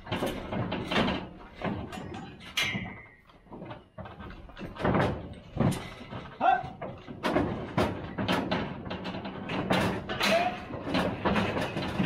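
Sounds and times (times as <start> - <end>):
metal pens banging and clanging: 4.2 - 12.0.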